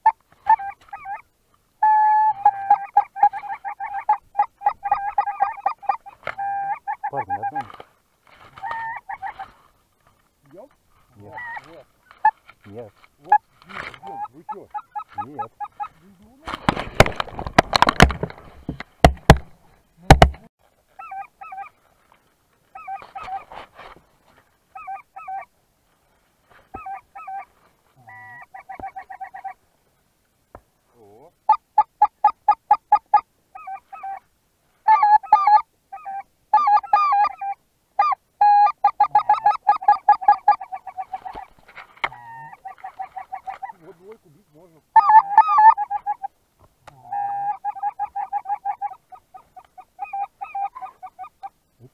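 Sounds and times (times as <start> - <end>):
geese honking: 0.0 - 7.8, 8.6 - 9.6, 11.2 - 16.2, 26.7 - 29.6, 34.9 - 46.3, 46.9 - 51.9.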